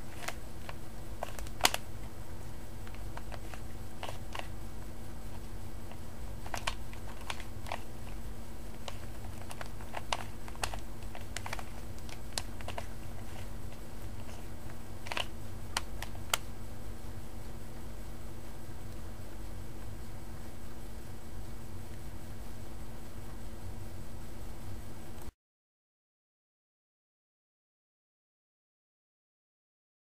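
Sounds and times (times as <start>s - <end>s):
puzzle cube clicking: 0.0s - 1.8s, 2.8s - 4.5s, 5.9s - 14.4s, 15.0s - 16.4s
steady low hum: 0.0s - 25.4s.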